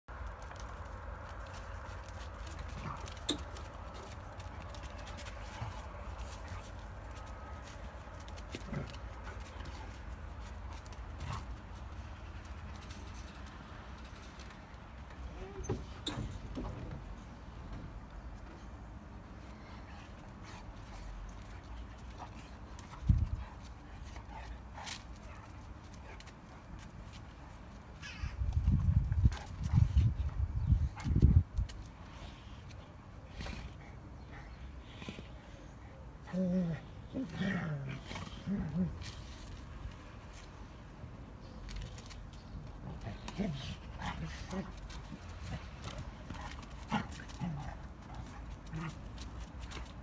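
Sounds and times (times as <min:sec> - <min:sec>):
paw clicks on paving: 0:00.1 - 0:15.3, 0:19.4 - 0:35.4, 0:37.4 - 0:50.0
dogs scuffling: 0:00.1 - 0:17.1, 0:38.4 - 0:50.0
dogs growling and whimpering: 0:36.2 - 0:39.2.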